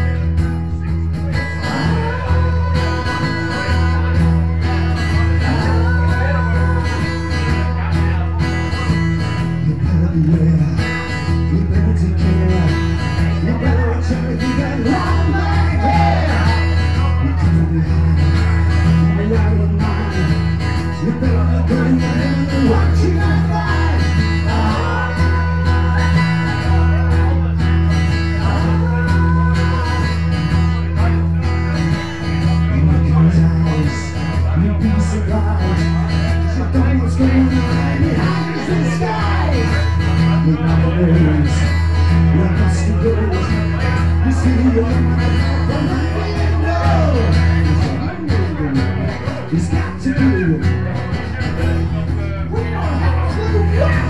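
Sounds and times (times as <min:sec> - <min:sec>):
amplified acoustic guitar music: 0:00.0 - 0:54.0.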